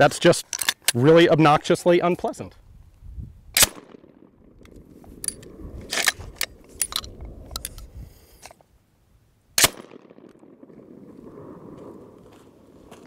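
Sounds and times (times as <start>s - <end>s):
metallic clicks of gun handling: 0.4s - 1.0s, 4.6s - 8.6s
shotgun shot: 3.6s - 4.2s, 9.6s - 10.7s.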